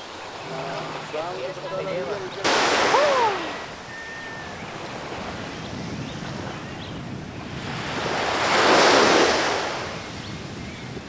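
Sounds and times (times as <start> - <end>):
ocean surf washing: 0.0 - 11.0
wave surging up: 0.4 - 4.0.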